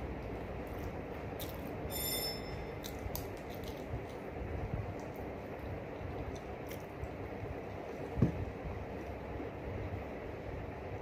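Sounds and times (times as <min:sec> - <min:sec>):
low rumbling background: 0:00.0 - 0:11.0
brief high tone: 0:01.9 - 0:02.9.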